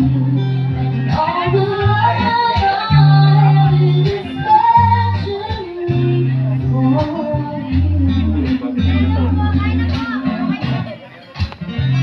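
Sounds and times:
woman singing: 0.0 - 10.9
guitar: 0.0 - 12.0
held bass notes: 0.0 - 12.0.

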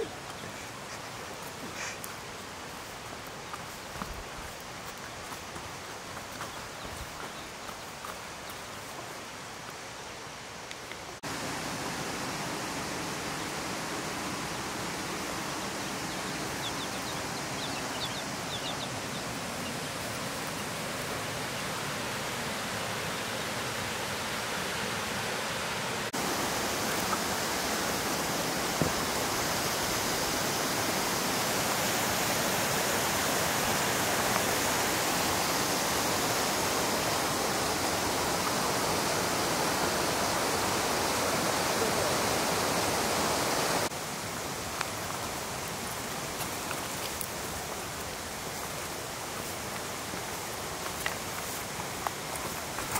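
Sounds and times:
flowing water rushing: 0.0 - 52.9.

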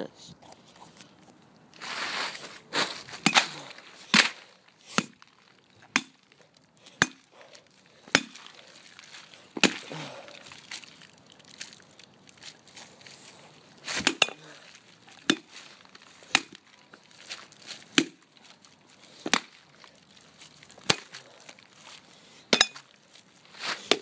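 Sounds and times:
blows smashing a pumpkin: 1.9 - 5.3.

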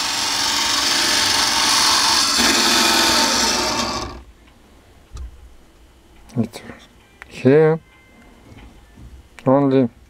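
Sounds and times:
electric motor whirring: 0.0 - 4.3.

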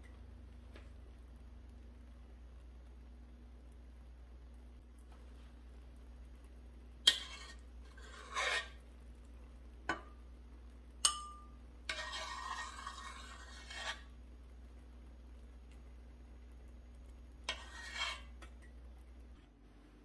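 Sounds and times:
spoon scraping through jam: 7.1 - 8.8, 11.9 - 14.1, 17.4 - 18.5
metal spoon clinking on pot: 11.0 - 13.3.

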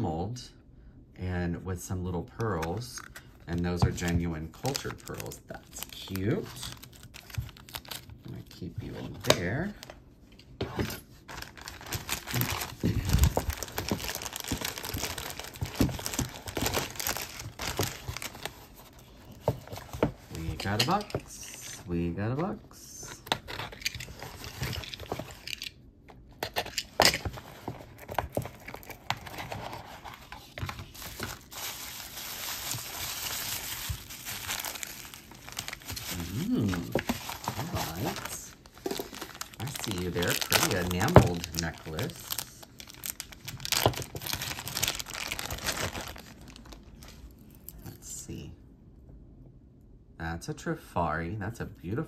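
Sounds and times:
wrapping crinkling: 3.0 - 8.7, 11.2 - 21.9, 26.6 - 47.6.

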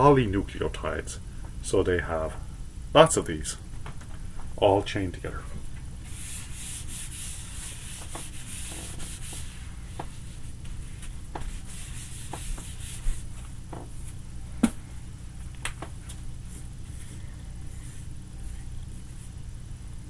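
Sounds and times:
eraser rubbing whiteboard: 6.0 - 13.5.

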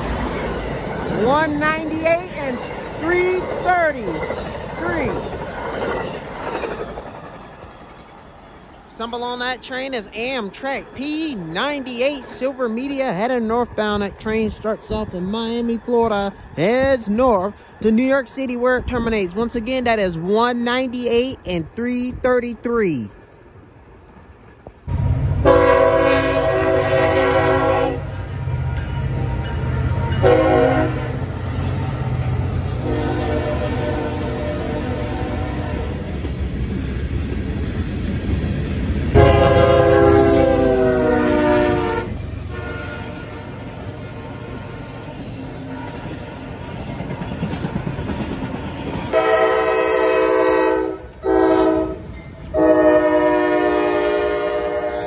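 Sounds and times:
freight train rumbling: 0.0 - 55.0
train horn blasts: 25.4 - 31.3, 32.7 - 36.0, 39.2 - 45.0, 45.6 - 47.0, 49.1 - 55.0.

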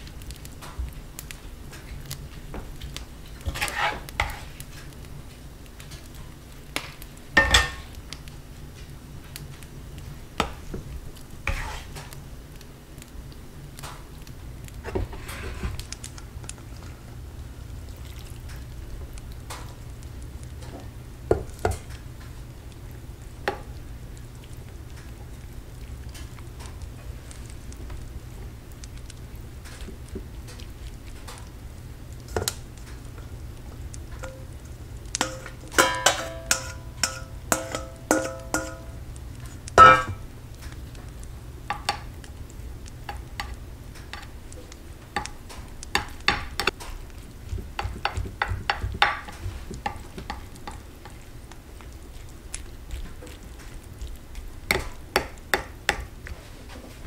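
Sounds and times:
low steady hum: 0.0 - 57.0
utensil scraping food in pot: 3.2 - 4.7, 11.4 - 12.2, 14.8 - 15.9, 34.1 - 40.2
knocks and clinks on cookware: 35.2 - 38.9, 39.8 - 40.2.

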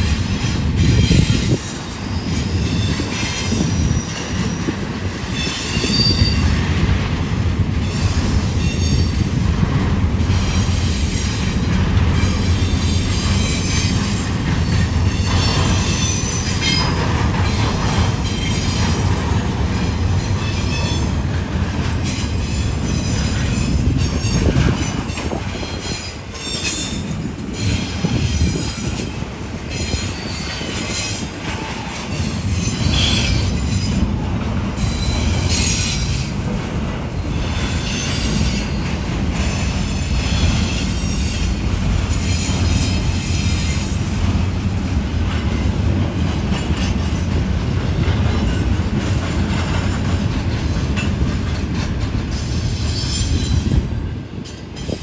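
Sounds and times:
steel wheels rumbling on rail: 0.0 - 55.0
high-pitched wheel squeal: 5.4 - 6.5.

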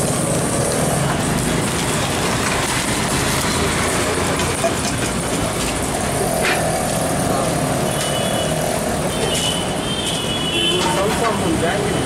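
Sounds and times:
roadside traffic noise: 0.0 - 12.0
steel bowls and plates clinking: 10.8 - 11.6.

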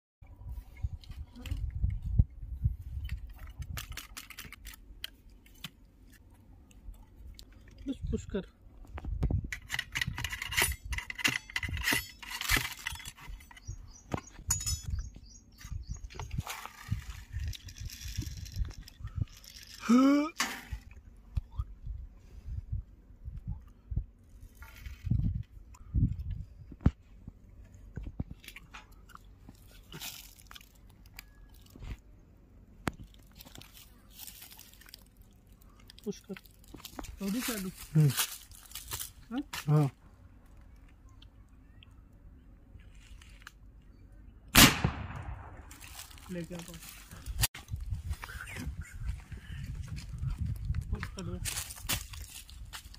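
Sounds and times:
clicks of gun handling: 3.1 - 5.8
ramrod scraping in gun barrel: 9.5 - 13.8.

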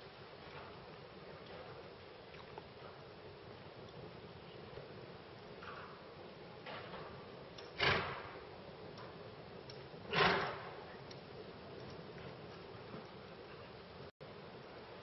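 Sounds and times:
horse snorting: 10.1 - 10.7.

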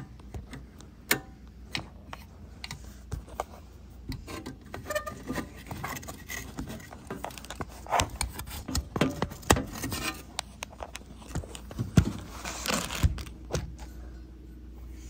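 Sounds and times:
plastic connectors clicking and scraping: 4.1 - 13.9.

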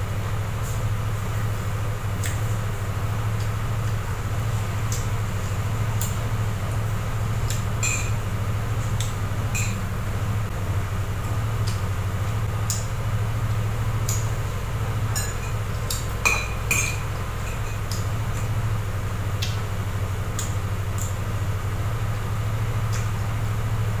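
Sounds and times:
steady low hum: 0.0 - 24.0
metal spoon clinking on pot: 7.8 - 8.2, 15.1 - 15.6, 16.2 - 17.9.

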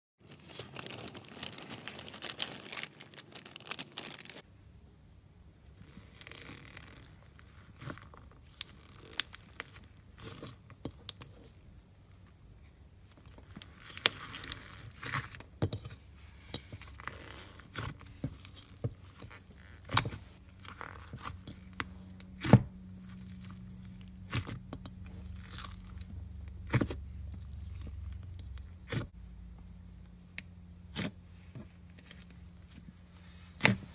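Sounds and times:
cling film crinkling: 0.2 - 4.4.

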